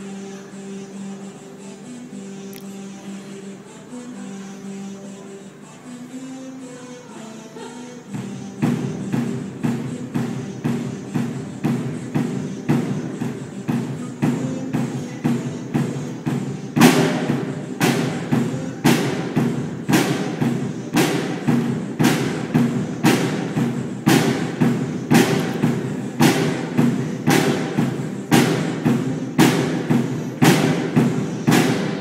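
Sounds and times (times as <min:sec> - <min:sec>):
drum kit beat: 0:08.1 - 0:32.0.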